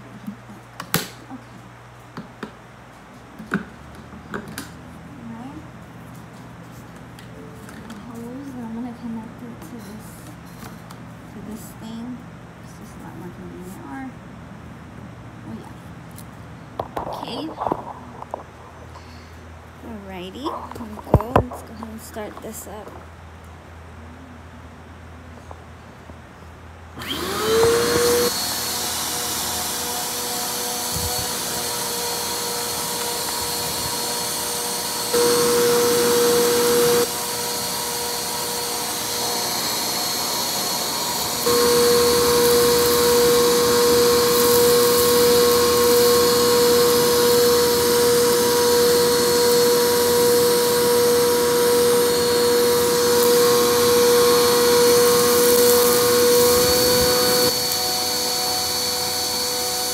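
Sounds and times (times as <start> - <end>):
vacuum cleaner motor whine: 27.0 - 59.9.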